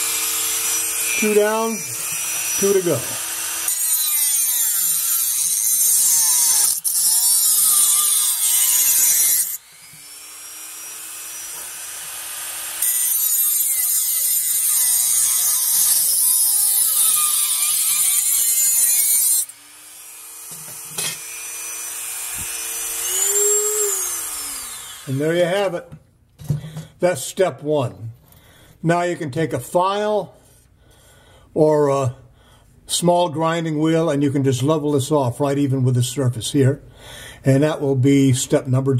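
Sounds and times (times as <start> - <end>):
rotary tool cutting sheet metal: 0.0 - 25.2.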